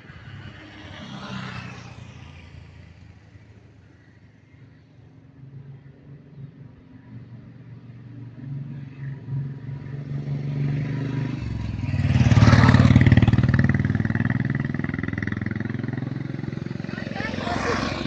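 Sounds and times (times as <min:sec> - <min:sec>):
vehicle driving past: 0:09.8 - 0:18.0.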